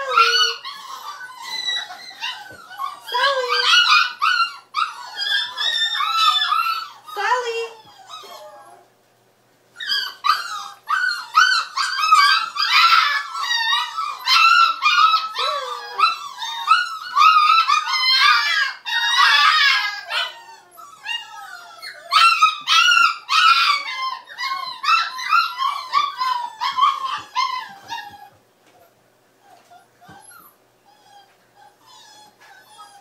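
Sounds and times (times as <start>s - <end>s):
puppy whining and yipping: 0.0s - 8.9s, 9.8s - 33.0s.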